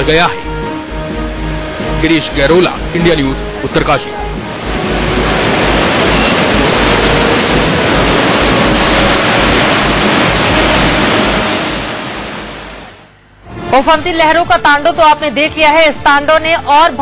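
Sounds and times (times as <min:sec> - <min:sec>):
river floodwater rushing: 0:00.8 - 0:13.0.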